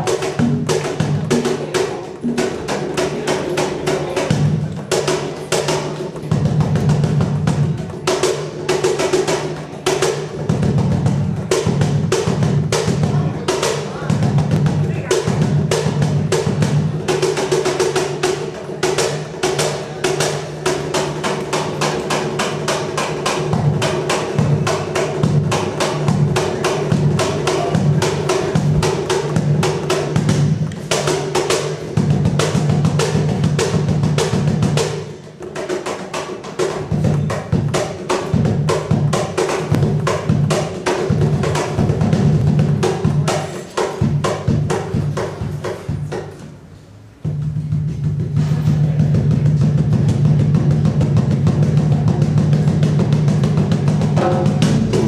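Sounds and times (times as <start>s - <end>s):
rapid hand drum strokes: 0.0s - 55.0s
low drum tone: 47.2s - 55.0s.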